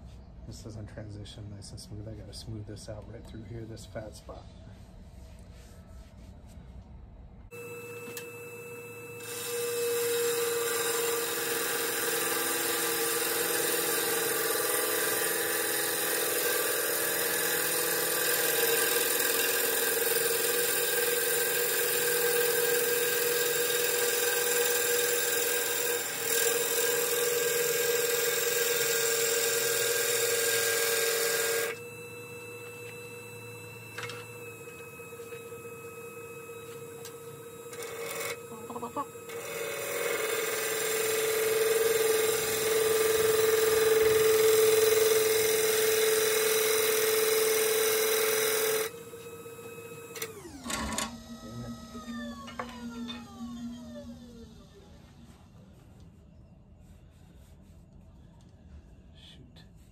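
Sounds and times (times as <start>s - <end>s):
wood lathe humming: 7.6s - 50.6s
gouge cutting wood: 9.2s - 31.8s, 37.8s - 48.9s.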